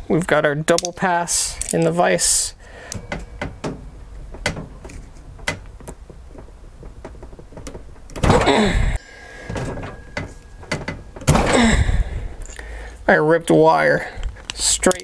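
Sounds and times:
small clicks and creaks: 2.9s - 8.2s.

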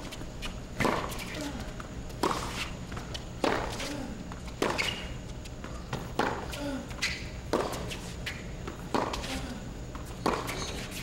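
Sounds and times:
sneaker squeaks: 0.0s - 11.0s
tennis racquet hitting ball: 0.8s - 1.3s, 5.9s - 6.5s, 7.5s - 7.9s, 8.7s - 9.3s, 10.2s - 11.0s
tennis ball bouncing: 0.8s - 3.9s, 4.5s - 6.6s, 7.4s - 8.0s, 8.6s - 9.3s, 10.0s - 11.0s.

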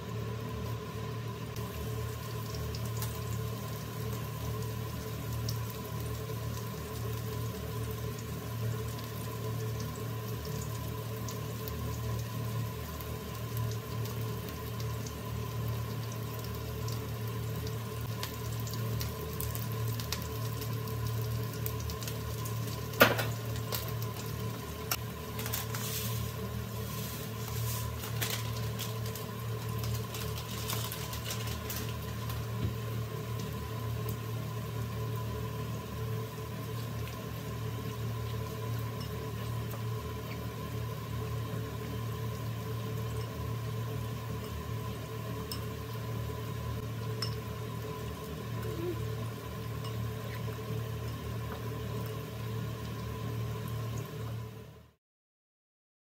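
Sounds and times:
mechanical hum with hiss: 0.0s - 55.0s
seeds rustling in plastic bag: 25.4s - 29.2s, 29.9s - 32.0s.

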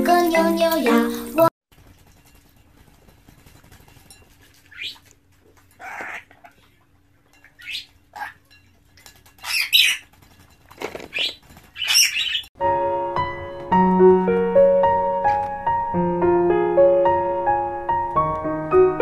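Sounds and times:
bird splashing in water: 1.7s - 6.8s
bird squawking: 4.7s - 5.1s, 5.8s - 6.7s, 7.5s - 8.4s, 9.4s - 10.1s, 11.1s - 12.5s.

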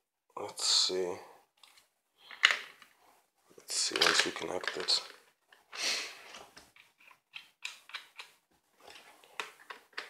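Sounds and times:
small plastic and metal clicks: 6.6s - 8.4s.

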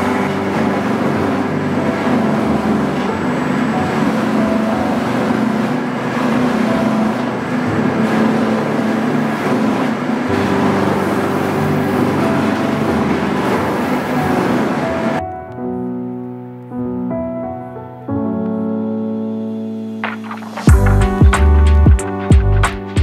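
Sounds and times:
drum sander sanding wood: 0.0s - 15.2s.

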